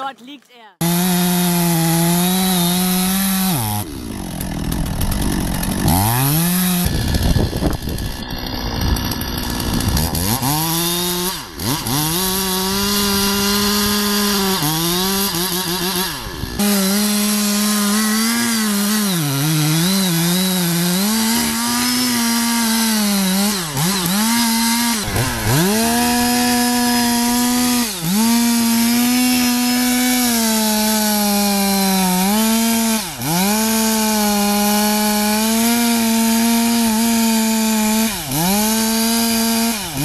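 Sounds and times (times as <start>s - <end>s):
chainsaw sawing into a tree trunk: 0.8s - 40.0s.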